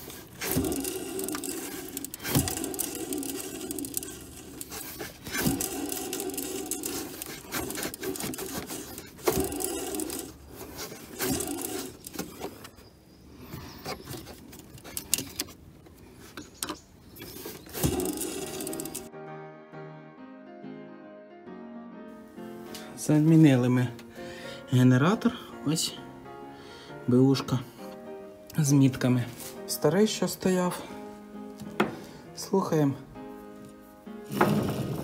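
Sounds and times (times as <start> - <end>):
pulley spinning with grating crackle: 0.0 - 12.7, 17.2 - 19.1.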